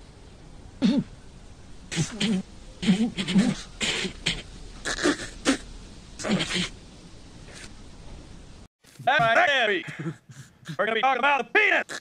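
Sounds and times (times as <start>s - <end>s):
cartoon boy snickering mouth noises: 1.9s - 5.6s.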